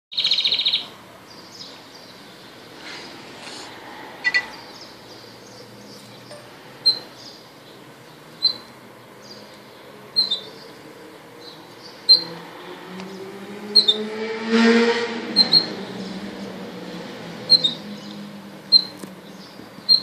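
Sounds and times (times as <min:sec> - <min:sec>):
canary chirping: 0:04.2 - 0:07.4, 0:08.4 - 0:08.7, 0:10.1 - 0:10.6, 0:12.0 - 0:12.3, 0:13.8 - 0:14.0, 0:15.4 - 0:15.7, 0:17.5 - 0:20.0
vehicle engine rising in pitch: 0:12.2 - 0:18.4.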